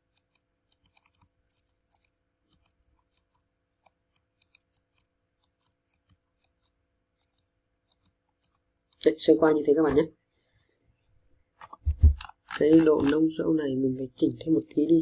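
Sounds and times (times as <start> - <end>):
computer mouse clicking: 0.0 - 9.1, 14.2 - 15.0.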